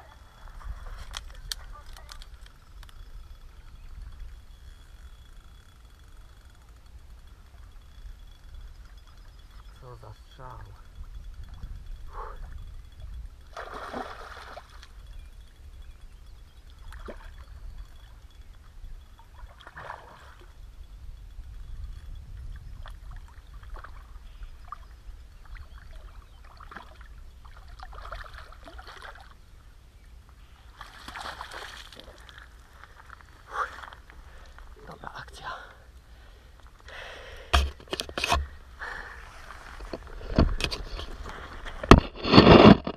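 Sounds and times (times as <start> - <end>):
fish thrashing in water: 13.5 - 14.8
landing net splashing into water: 13.5 - 14.8, 30.7 - 32.4.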